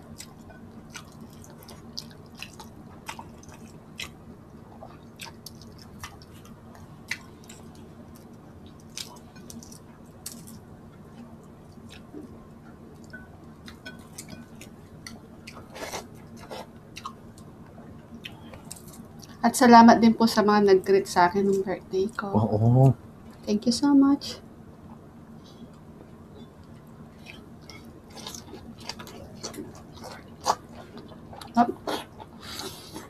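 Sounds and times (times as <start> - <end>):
wet chewing and mouth smacks: 0.0 - 4.2, 4.9 - 10.6, 26.6 - 33.0
low steady hum: 0.0 - 33.0.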